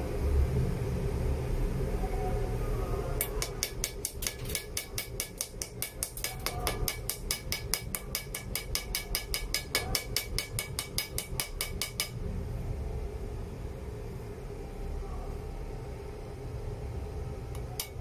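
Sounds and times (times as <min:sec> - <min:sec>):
chipping hammer striking metal: 0:03.2 - 0:12.2.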